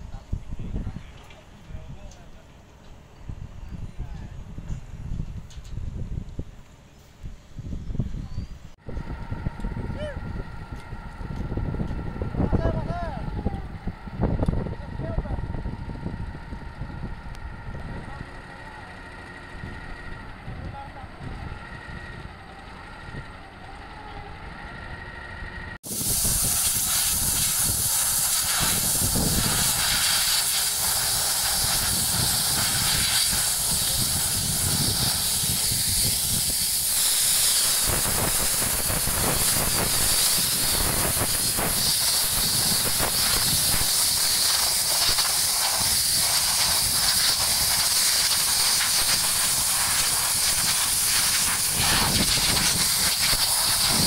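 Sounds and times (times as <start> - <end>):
construction machinery running: 8.8 - 54.0
compressed air hissing from hose: 25.9 - 54.0.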